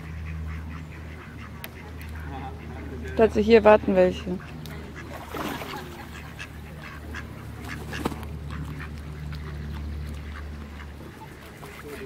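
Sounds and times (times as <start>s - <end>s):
ducks quacking: 0.0s - 12.0s.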